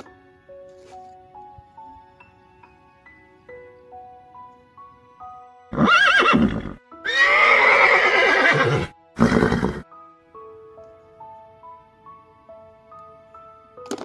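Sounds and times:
soft melodic background music: 0.0s - 14.0s
horse neighing: 5.7s - 9.9s.

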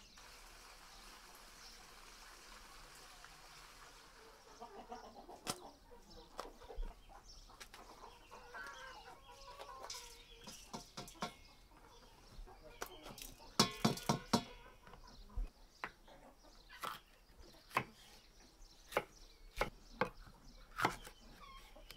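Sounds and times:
chickens clucking: 3.8s - 18.5s.

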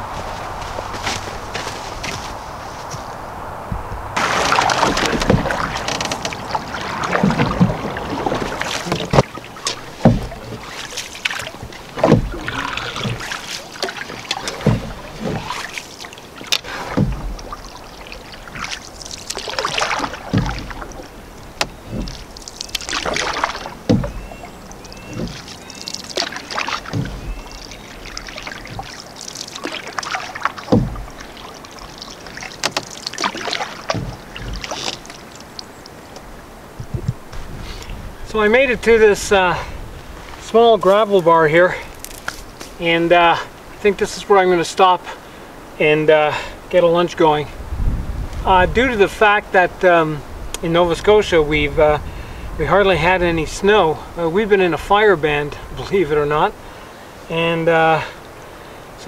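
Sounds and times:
paddle splashing through water: 0.0s - 59.0s
sharp knocks: 3.7s - 15.7s, 16.5s - 17.6s, 18.5s - 29.0s, 29.7s - 31.4s.

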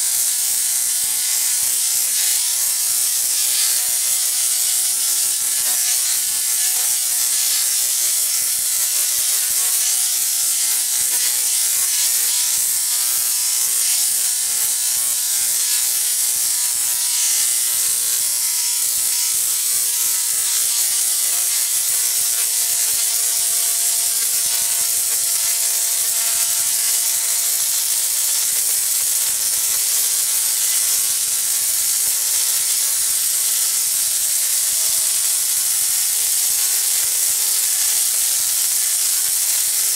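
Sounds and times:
tesla coil buzzing crackle: 0.0s - 39.9s.

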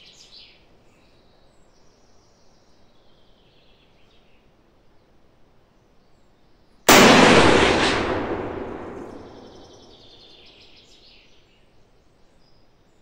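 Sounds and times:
rifle shot echoing: 6.9s - 10.2s.

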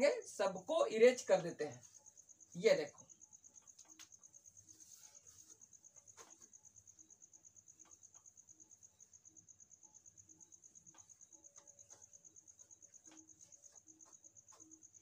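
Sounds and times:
cloth wiping whiteboard: 4.6s - 6.5s
faint ticks: 5.5s - 15.0s.

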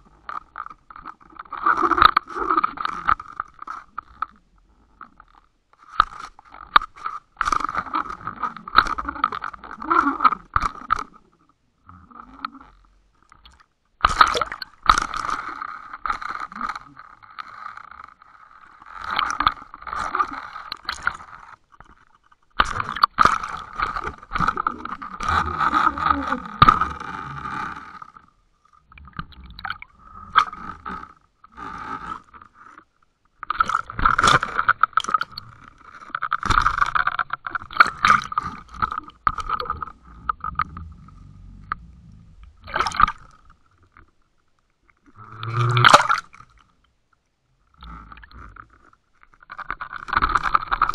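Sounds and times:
water rushing over camera housing: 36.0s - 43.7s.

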